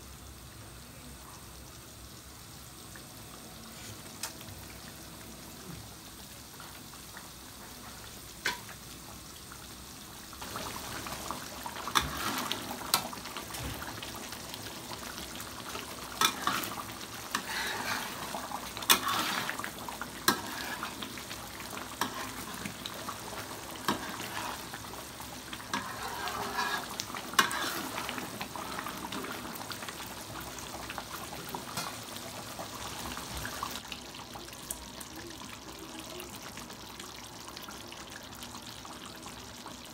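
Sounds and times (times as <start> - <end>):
stew sizzling and bubbling: 0.0 - 39.9
metal spatula scraping wok: 11.9 - 12.7, 16.2 - 21.0, 23.9 - 24.7, 25.7 - 28.9.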